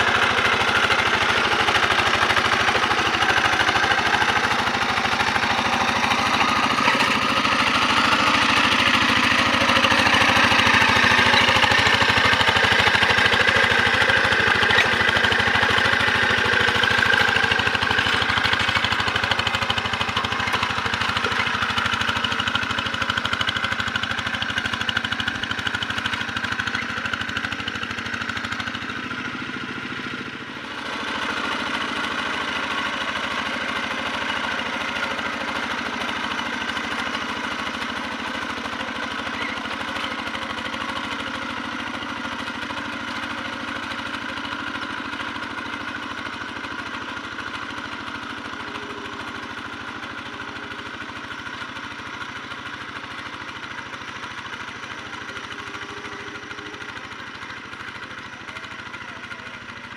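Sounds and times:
hand tractor diesel engine running: 0:00.0 - 0:59.9.

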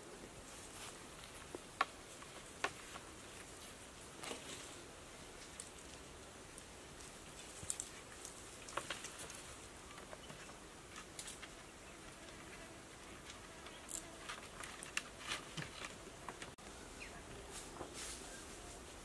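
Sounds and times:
rustling of leaves and soil: 0:00.0 - 0:19.0
bamboo poles clicking: 0:07.6 - 0:11.6.

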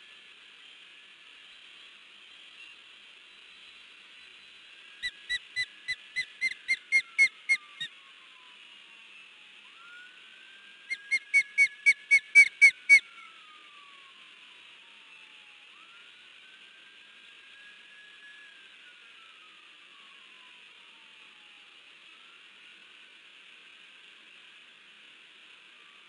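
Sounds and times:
osprey whistled alarm calls: 0:05.0 - 0:07.9, 0:10.9 - 0:13.1.

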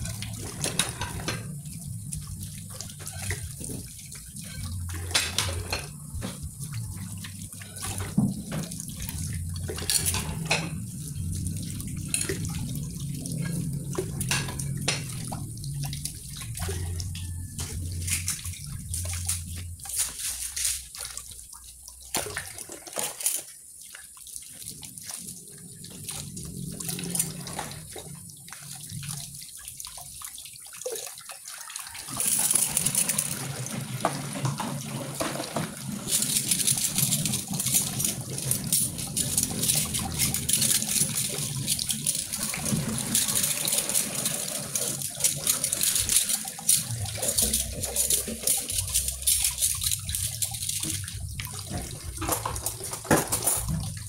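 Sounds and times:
utensils clinking: 0:00.0 - 0:01.9, 0:02.9 - 0:06.5, 0:07.4 - 0:11.3, 0:32.1 - 0:33.5, 0:34.5 - 0:54.0
tap water splashing into sink: 0:00.0 - 0:25.2, 0:25.8 - 0:54.0.

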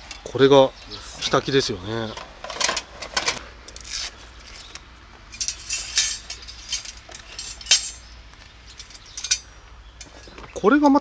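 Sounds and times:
metal frame clinking and rattling: 0:05.3 - 0:10.2.

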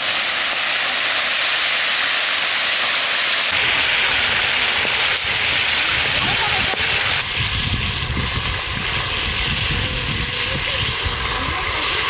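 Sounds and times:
fish sizzling in oil: 0:00.0 - 0:12.0.

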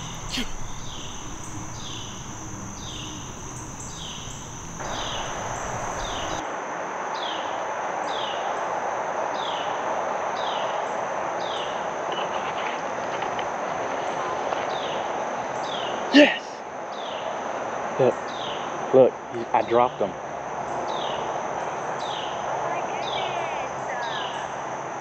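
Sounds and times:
high-pitched insect drone: 0:00.0 - 0:06.4
hiss: 0:00.0 - 0:06.4
short falling insect chirp: 0:00.0 - 0:06.4.

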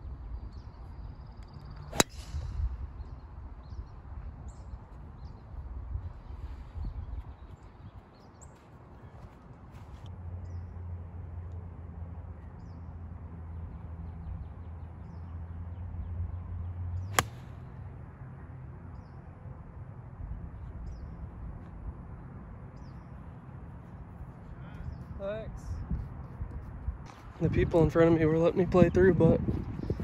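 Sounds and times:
golf club striking ball: 0:01.9 - 0:02.6, 0:17.1 - 0:17.5.

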